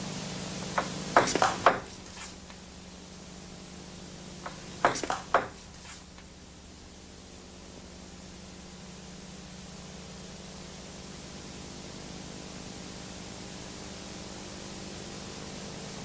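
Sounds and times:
background hiss and hum: 0.0 - 16.0.

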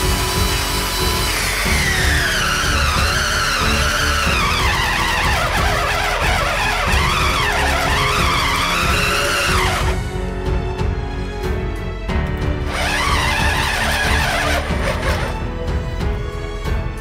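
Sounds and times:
drill motor whine: 0.0 - 10.0, 12.6 - 15.4.

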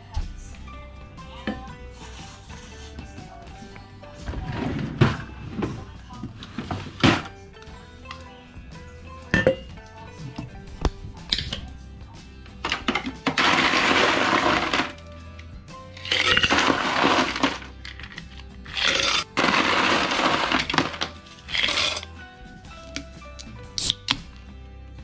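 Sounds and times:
background music: 0.0 - 25.0
ice cubes clattering into metal tumbler: 12.7 - 15.0, 16.0 - 18.1, 18.7 - 22.1
scoop digging into ice cubes: 13.3 - 15.0, 16.0 - 22.1.

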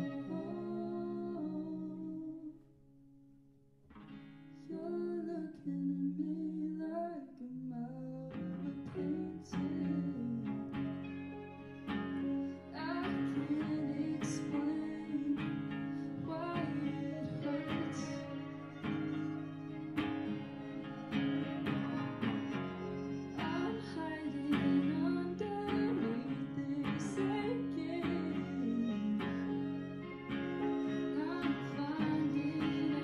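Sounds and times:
woman singing: 0.0 - 2.6, 4.7 - 10.9, 12.7 - 18.8, 23.4 - 33.0.

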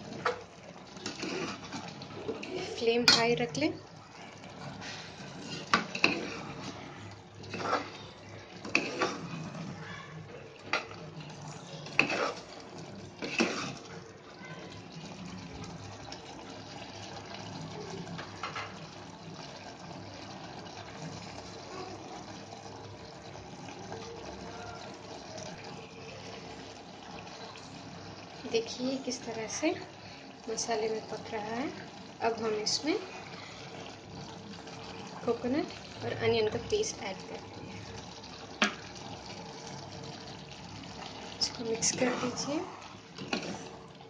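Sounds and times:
curry bubbling in a pot: 0.0 - 44.0
metal ladle scraping a pot: 1.0 - 3.2, 4.6 - 9.8, 11.8 - 12.6, 13.2 - 13.9, 41.8 - 43.7.

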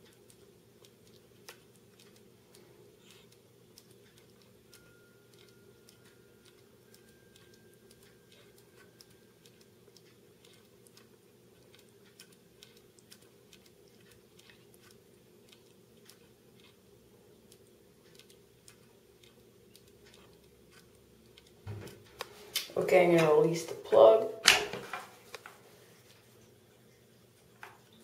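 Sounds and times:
faint small ticks and clicks: 0.0 - 16.8, 17.4 - 21.6
low room hum: 0.0 - 28.0.

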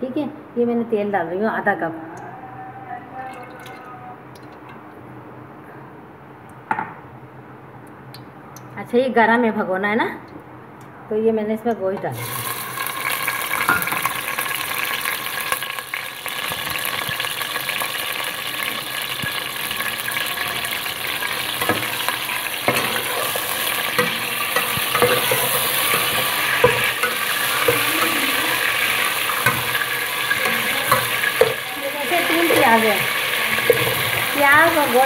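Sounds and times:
meat sizzling in hot oil: 12.2 - 35.0
ladle scraping and knocking pot: 21.4 - 35.0.

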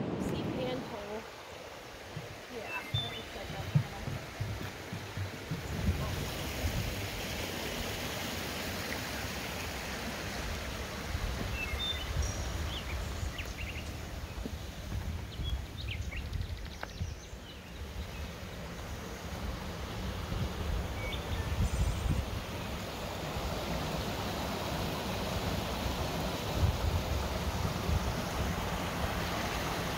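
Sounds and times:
wind rumble on microphone: 0.0 - 1.3, 2.0 - 7.7, 10.9 - 18.2, 19.5 - 22.8, 26.1 - 29.9
creek rushing: 0.0 - 16.2, 17.3 - 29.9
high bird chirps: 2.6 - 3.5.

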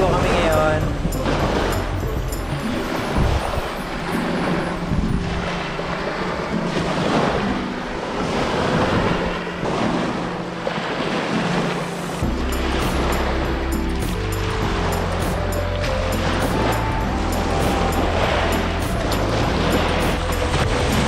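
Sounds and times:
wind buffeting microphone: 0.0 - 11.6
small waves washing on beach: 0.0 - 21.0.

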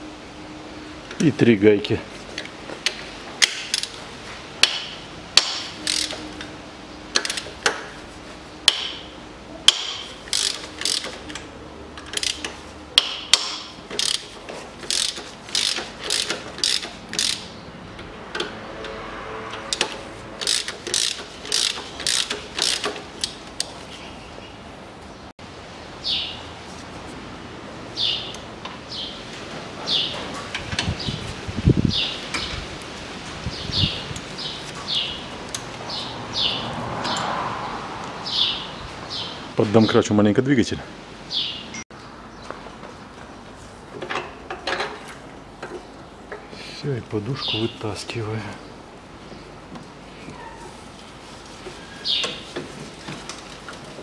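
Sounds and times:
hand ratchet clicking: 5.4 - 6.3, 9.7 - 11.4, 12.0 - 17.5, 19.8 - 23.7.

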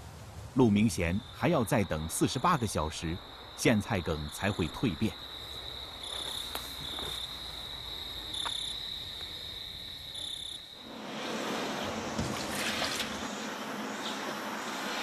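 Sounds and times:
crickets trilling: 0.5 - 15.0
water pouring into a basin: 12.0 - 13.5.

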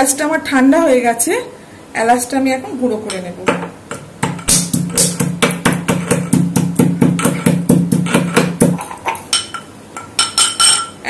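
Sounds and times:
low ringing hum: 0.0 - 11.0
pestle pounding in a mortar: 3.5 - 9.6.

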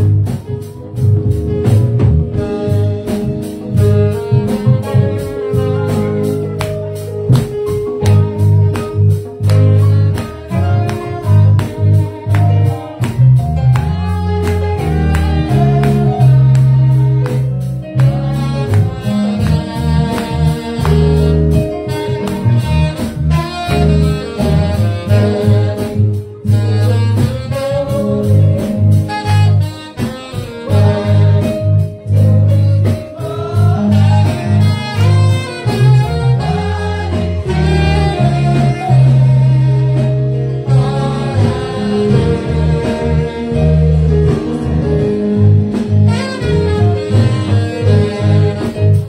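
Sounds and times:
alto saxophone melody: 0.0 - 49.0
bass line: 0.0 - 49.0.

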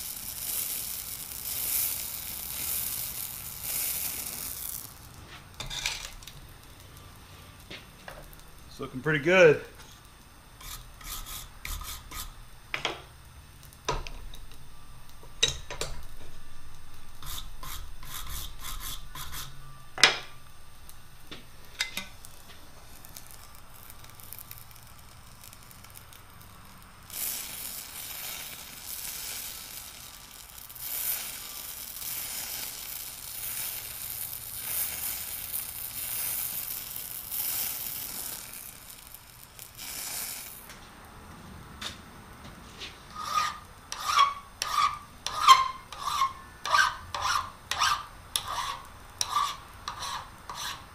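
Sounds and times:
torch hissing: 0.0 - 14.1, 21.2 - 40.8
brush scraping steel: 4.5 - 6.2, 10.6 - 12.4, 17.2 - 19.6, 42.7 - 50.9.

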